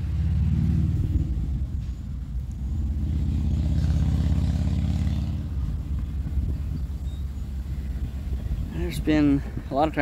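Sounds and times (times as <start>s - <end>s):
motorcycle riding past: 0.0s - 1.7s, 2.7s - 6.7s.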